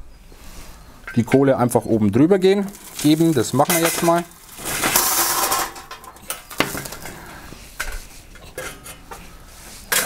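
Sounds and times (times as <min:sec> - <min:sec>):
charcoal clattering into metal bowl: 0:02.7 - 0:07.1.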